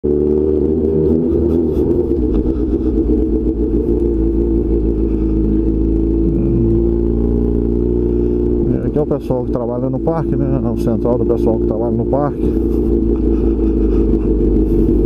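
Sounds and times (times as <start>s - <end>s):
motorcycle engine cruising: 0.0s - 15.0s.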